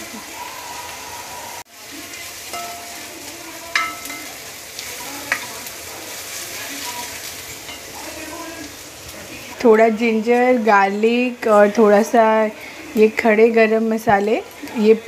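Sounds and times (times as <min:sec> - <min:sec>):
onions sizzling in oil: 0:00.0 - 0:15.0
spatula knocking against pan: 0:03.7 - 0:04.3.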